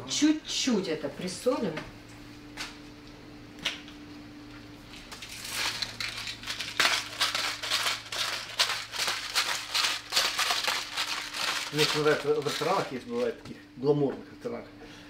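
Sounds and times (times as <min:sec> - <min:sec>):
salt grinder crunching: 0:05.0 - 0:13.4.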